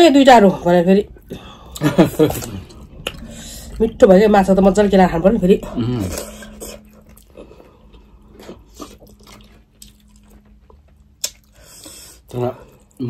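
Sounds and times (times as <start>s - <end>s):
faint low hum: 0.0s - 13.0s
chewing with wet smacks: 6.0s - 13.0s.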